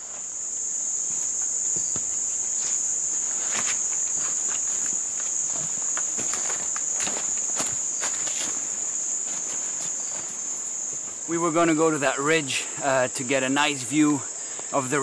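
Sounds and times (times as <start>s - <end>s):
insects droning: 0.0s - 15.0s
footsteps on leaf litter: 1.0s - 11.2s.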